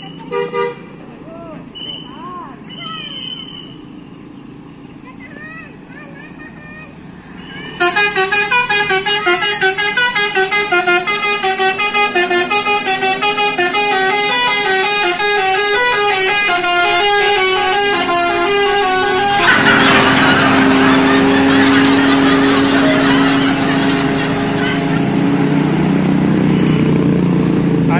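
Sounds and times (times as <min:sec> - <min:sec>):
bus passing with rushing noise: 0:00.0 - 0:27.9
bus horn playing melody: 0:00.3 - 0:00.9, 0:07.8 - 0:27.0.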